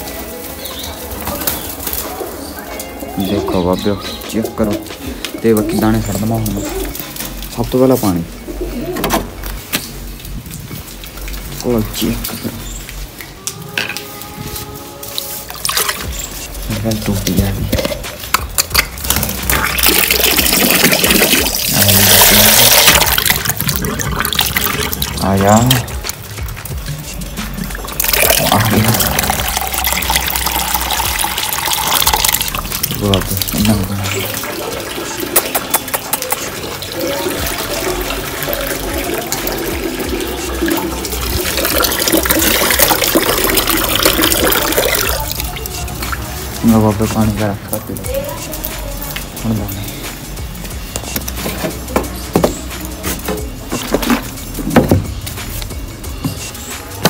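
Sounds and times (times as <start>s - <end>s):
tap water filling plastic mug: 19.5s - 25.2s, 27.6s - 45.4s.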